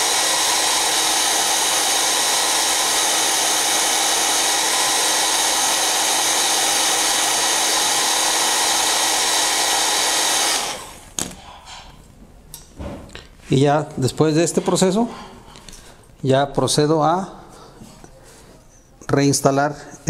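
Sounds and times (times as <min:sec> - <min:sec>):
hair dryer blowing: 0:00.0 - 0:11.2.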